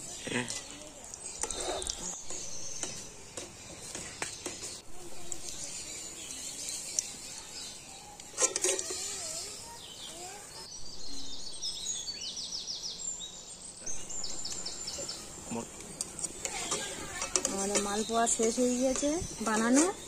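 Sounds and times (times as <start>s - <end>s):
hot oil sizzling: 0.0s - 10.7s, 13.8s - 20.0s
birds chirping: 0.0s - 20.0s
metal spoon clatter: 8.3s - 9.2s, 16.2s - 20.0s.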